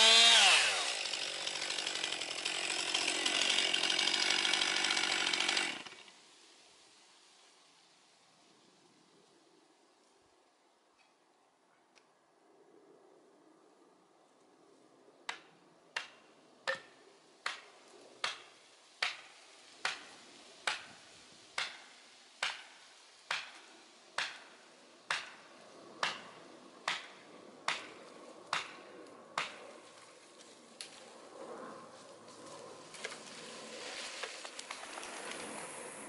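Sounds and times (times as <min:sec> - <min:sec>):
axe chopping tree: 0:15.3 - 0:17.6, 0:18.2 - 0:21.0, 0:21.6 - 0:24.5, 0:25.1 - 0:25.4, 0:26.0 - 0:26.3, 0:26.9 - 0:28.8, 0:29.4 - 0:29.6.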